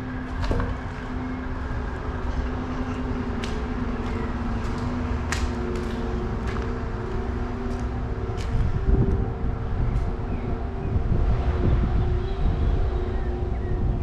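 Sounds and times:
low rumble and hum: 0.0 - 14.0
footsteps crunching grit on tile: 3.4 - 8.8.

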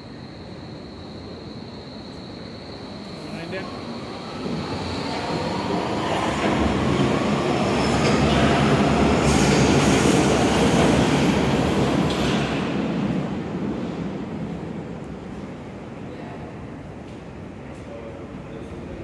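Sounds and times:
subway train rumble: 0.0 - 19.0.

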